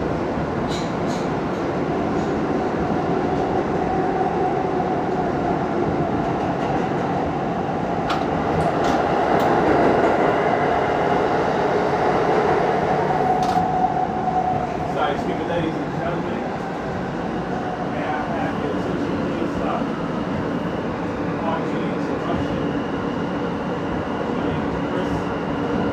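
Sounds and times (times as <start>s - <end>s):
subway wheels rumbling on rail: 0.0s - 25.9s.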